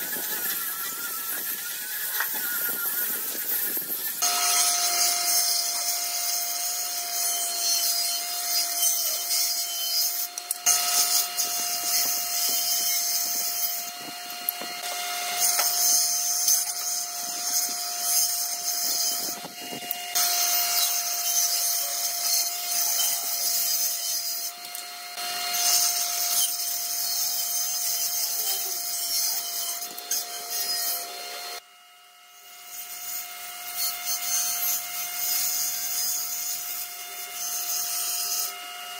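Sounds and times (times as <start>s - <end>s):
saw blade ripping wood: 0.0s - 6.6s
table saw whine: 0.0s - 38.9s.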